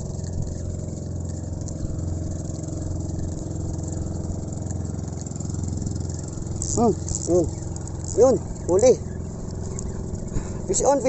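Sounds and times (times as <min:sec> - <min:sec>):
engine running steadily: 0:00.0 - 0:11.0.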